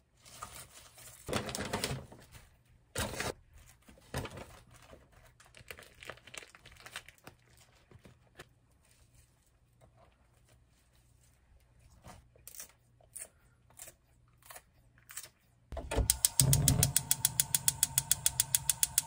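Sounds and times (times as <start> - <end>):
plastic bags crinkling: 4.1 - 8.3.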